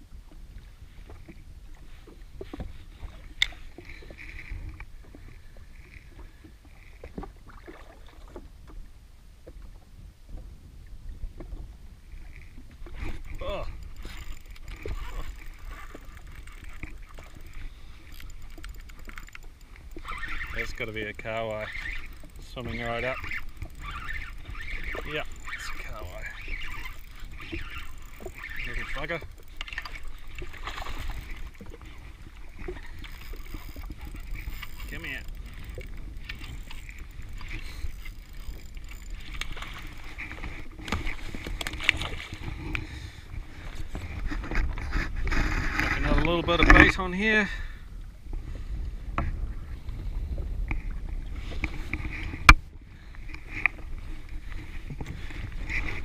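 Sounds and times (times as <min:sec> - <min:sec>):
choppy water: 0:00.0 - 0:56.0
wind rumbling on microphone: 0:00.0 - 0:56.0
fishing reel clicking: 0:13.1 - 0:42.8.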